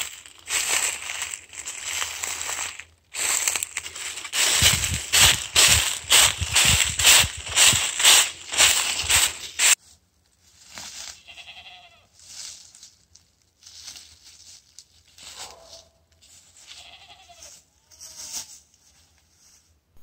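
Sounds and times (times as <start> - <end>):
footsteps crunching through dry leaves: 0.0 - 9.8, 10.4 - 19.0
goats bleating: 11.1 - 12.1, 16.7 - 18.2.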